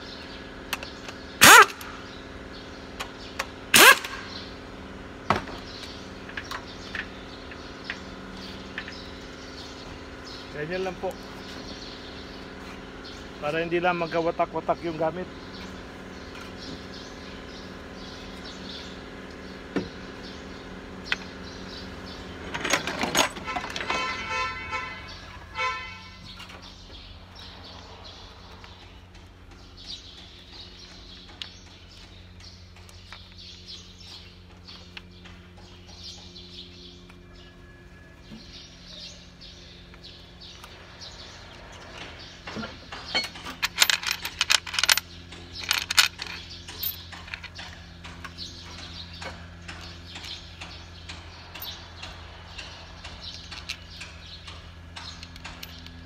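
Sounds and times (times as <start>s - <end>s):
low background hum: 0.0s - 56.0s
metal tools clinking and rattling: 22.4s - 24.9s, 41.9s - 52.2s, 53.0s - 56.0s.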